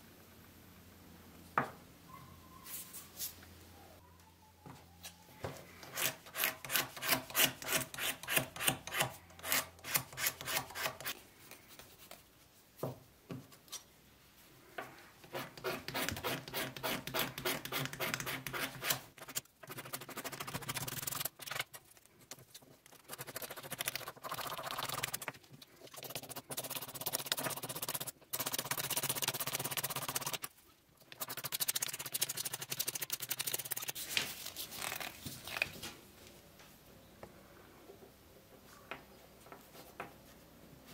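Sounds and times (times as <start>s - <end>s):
razor blade scraping wood: 5.8s - 11.2s.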